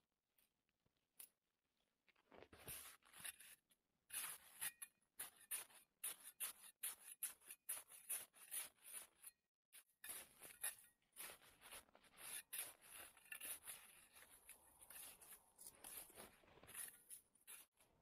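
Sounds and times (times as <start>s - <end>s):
shovel scraping crusted snow: 2.5s - 18.0s.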